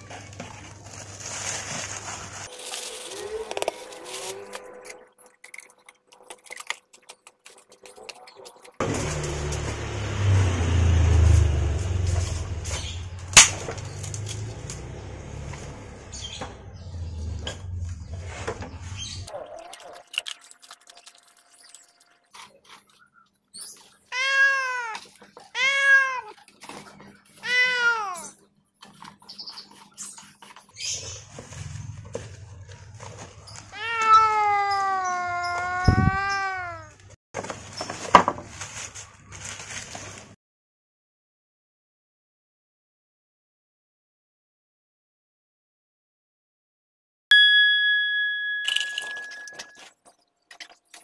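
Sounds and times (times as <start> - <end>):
low engine rumble: 8.8 - 19.3
cat meowing: 24.1 - 26.4, 27.3 - 28.4, 33.7 - 37.0.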